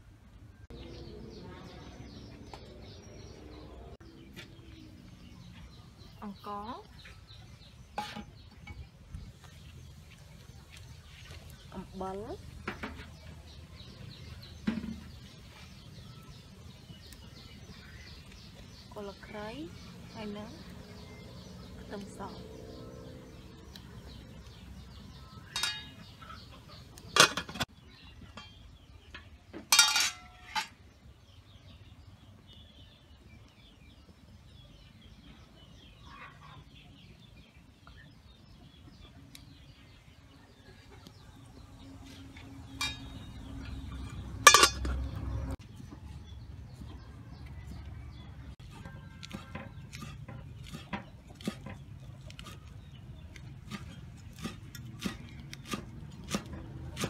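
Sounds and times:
metal kitchenware clanking on pot: 0:08.0 - 0:08.8, 0:25.4 - 0:27.7, 0:28.3 - 0:30.8, 0:42.7 - 0:45.6.

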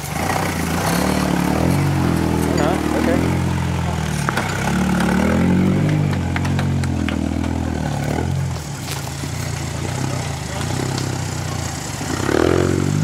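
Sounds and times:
engine running at low speed: 0:00.0 - 0:13.0
clicks of rocks and gravel: 0:07.9 - 0:09.6.

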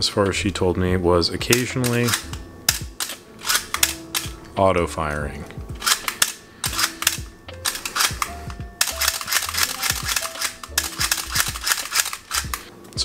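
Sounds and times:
background music with steady beat: 0:00.0 - 0:13.0
camera mechanical clicks: 0:01.5 - 0:04.3, 0:05.8 - 0:12.7.

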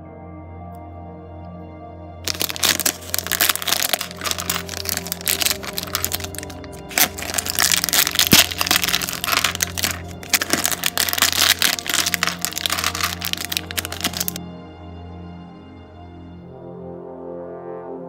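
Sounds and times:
background music: 0:00.0 - 0:18.0
plastic bags crinkling: 0:02.3 - 0:14.4
plastic pieces rattling: 0:02.3 - 0:14.4.

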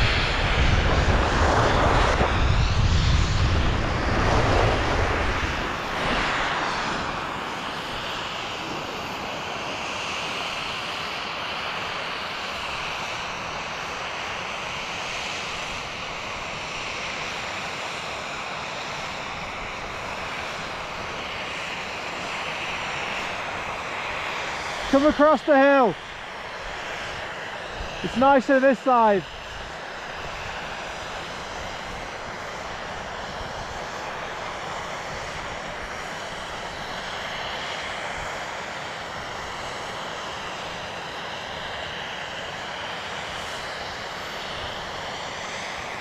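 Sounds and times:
wind buffeting microphone: 0:00.0 - 0:09.9.

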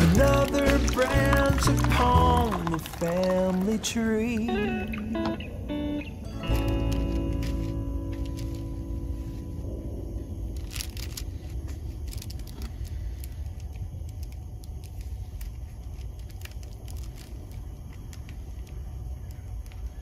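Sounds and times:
low steady rumble: 0:05.6 - 0:19.0
paper wrapper rustling: 0:06.4 - 0:09.3, 0:10.6 - 0:18.4.

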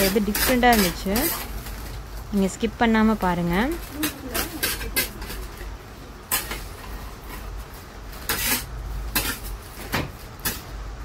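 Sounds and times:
metal scraper scraping metal slab: 0:00.0 - 0:01.5, 0:04.0 - 0:05.6, 0:08.1 - 0:09.5.

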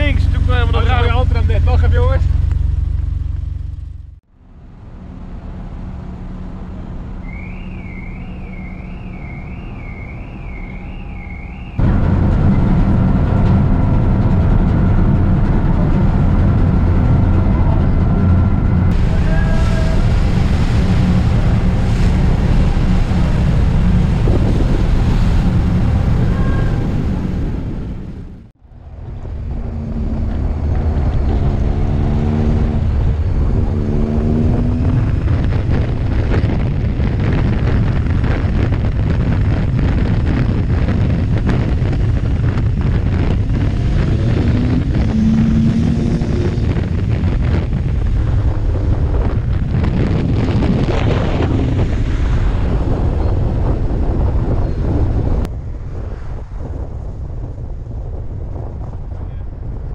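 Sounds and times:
ferry engines rumbling: 0:00.0 - 0:59.9
warbling high tone: 0:07.2 - 0:11.8, 0:44.4 - 0:46.8
wind on microphone: 0:07.3 - 0:59.9
engine accelerating through gears: 0:28.3 - 0:37.5, 0:40.3 - 0:52.7.

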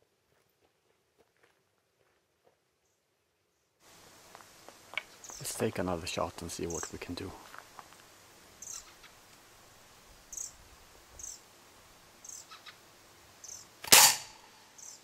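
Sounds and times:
high bird chirps: 0:08.6 - 0:09.1, 0:10.3 - 0:10.6
air rifle shot crack: 0:13.8 - 0:14.5.

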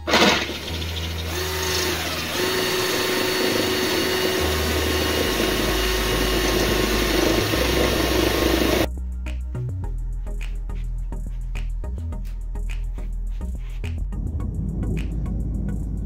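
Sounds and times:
drill bit cutting metal: 0:00.0 - 0:08.9
cordless drill motor whine: 0:00.1 - 0:08.9.

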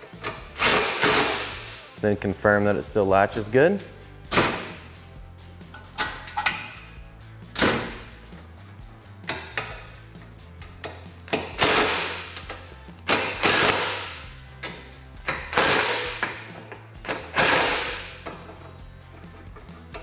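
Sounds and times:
quiet background music: 0:00.0 - 0:20.0
cordless driver driving screws: 0:17.1 - 0:18.5.

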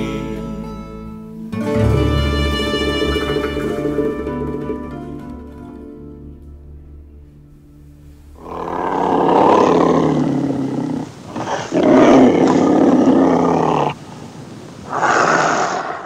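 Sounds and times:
animal loud drawn-out calls: 0:08.4 - 0:14.0, 0:14.8 - 0:16.0.

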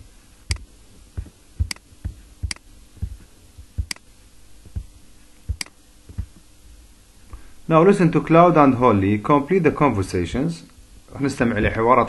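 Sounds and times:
faint steady hum: 0:00.0 - 0:12.0
computer mouse clicking: 0:01.6 - 0:01.8, 0:03.8 - 0:04.0.

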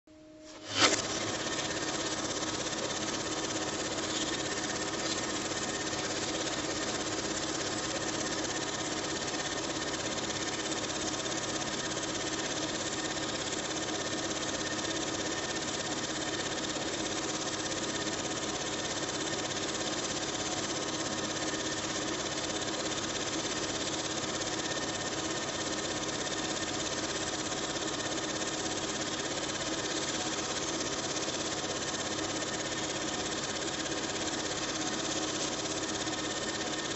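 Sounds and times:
film projector whirring: 0:00.5 - 0:36.9.

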